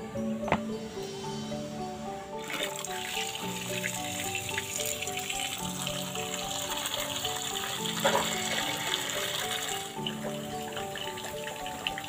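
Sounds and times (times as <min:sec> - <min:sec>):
background music: 0:00.0 - 0:12.0
tap water running and splashing: 0:02.4 - 0:12.0.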